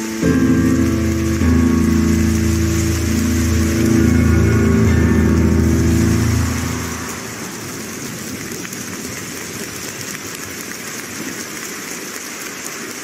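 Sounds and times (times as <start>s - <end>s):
skating program music: 0.0s - 7.8s.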